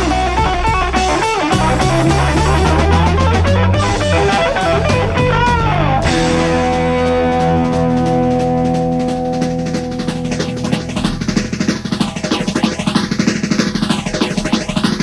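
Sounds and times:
bass guitar: 0:00.7 - 0:12.7
electric guitar lead: 0:01.4 - 0:12.5
drums playing: 0:01.5 - 0:05.9.

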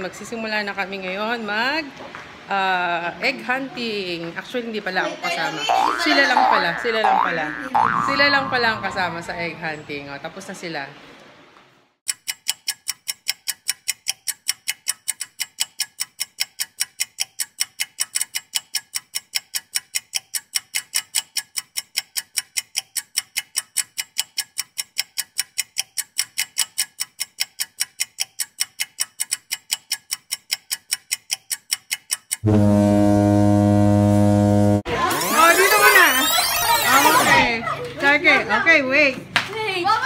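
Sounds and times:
clock ticking: 0:05.6 - 0:09.3, 0:12.1 - 0:32.4, 0:35.2 - 0:37.5.

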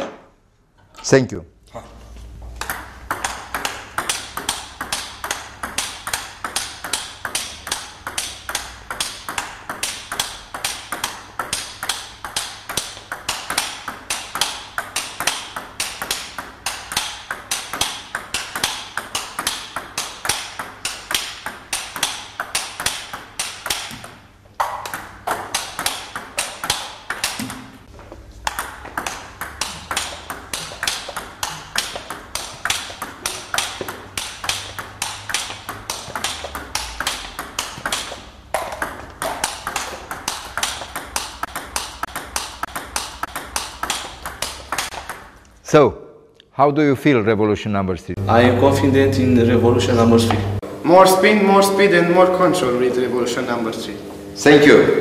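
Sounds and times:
ping pong ball bouncing on table: 0:02.6 - 0:27.7, 0:28.4 - 0:45.3
ping pong ball on rackets: 0:02.6 - 0:27.7, 0:28.4 - 0:45.3.

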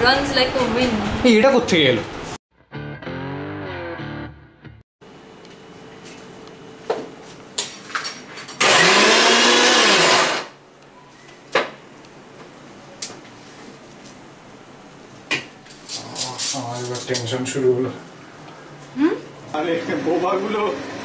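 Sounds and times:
loud whirring noise: 0:08.6 - 0:10.6.

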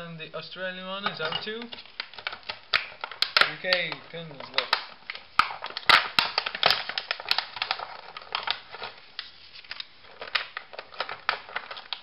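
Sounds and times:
plastic packaging crackling: 0:00.9 - 0:12.0.

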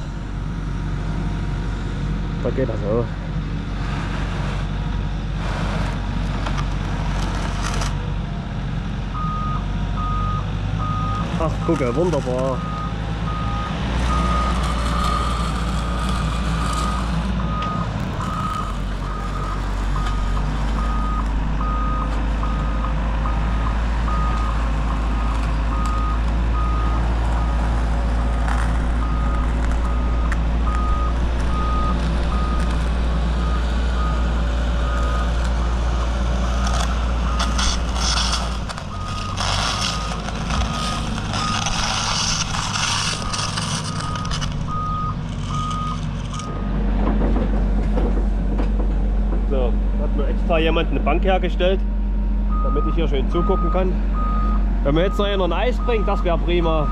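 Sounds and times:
construction machine engine running: 0:00.0 - 0:56.9
reversing alarm beeping: 0:09.1 - 0:27.6, 0:29.0 - 0:35.8, 0:37.2 - 0:46.7, 0:52.5 - 0:56.9
clattering and scraping: 0:36.4 - 0:49.6
screed bar dragging through grit: 0:36.8 - 0:46.4.

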